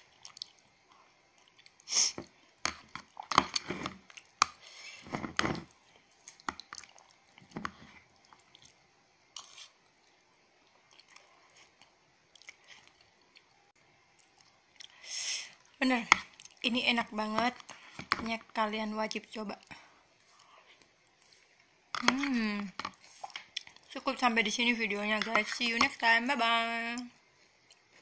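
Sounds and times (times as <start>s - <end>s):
person chewing with crunching bites: 0.0s - 8.8s, 9.4s - 15.0s.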